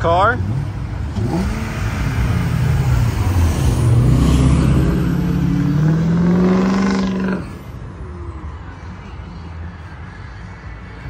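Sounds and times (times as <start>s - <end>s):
car accelerating past: 0.4s - 7.7s.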